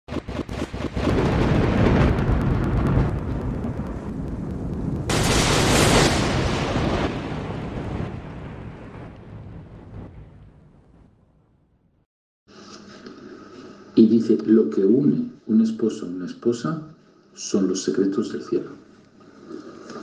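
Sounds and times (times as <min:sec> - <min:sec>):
rumbling thunder: 0:00.1 - 0:11.8
sharp thunderclap: 0:00.1 - 0:11.8
steady rain: 0:01.0 - 0:10.1.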